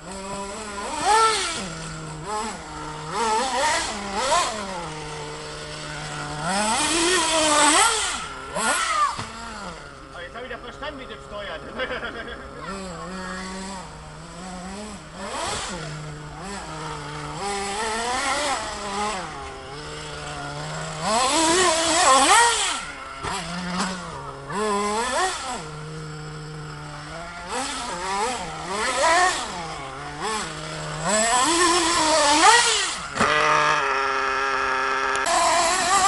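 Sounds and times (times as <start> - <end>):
model buggy engine revving: 0.0 - 36.0.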